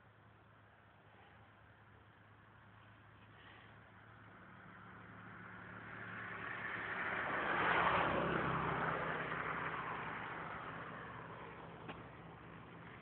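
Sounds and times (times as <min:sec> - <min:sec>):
motor vehicle passing by: 0:02.8 - 0:13.0.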